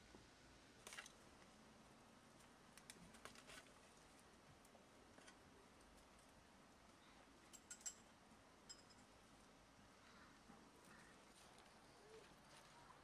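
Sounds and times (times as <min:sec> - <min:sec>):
faint background hiss: 0:00.0 - 0:13.0.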